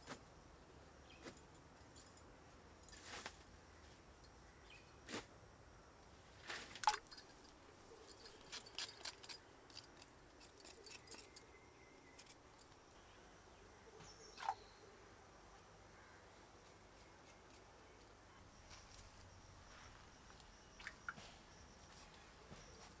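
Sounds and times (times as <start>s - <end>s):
knife scraping potato skins: 9.9s - 11.4s.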